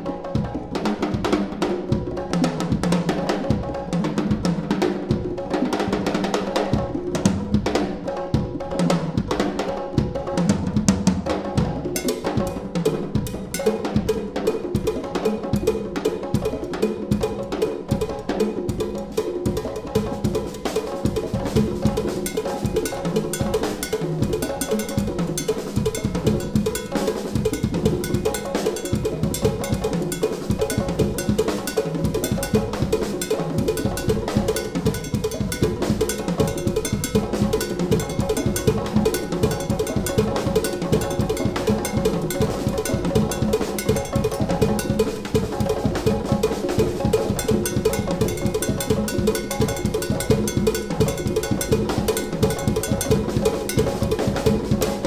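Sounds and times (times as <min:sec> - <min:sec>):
drum kit solo: 0:00.0 - 0:55.0
cowbell-like clack: 0:13.3 - 0:15.6, 0:19.6 - 0:55.0.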